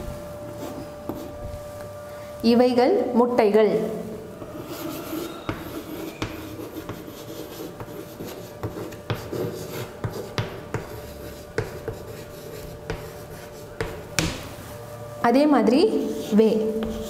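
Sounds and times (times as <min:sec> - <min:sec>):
steady low hum: 0:00.0 - 0:17.0
chalk tapping and scratching on board: 0:04.7 - 0:14.5, 0:16.0 - 0:17.0.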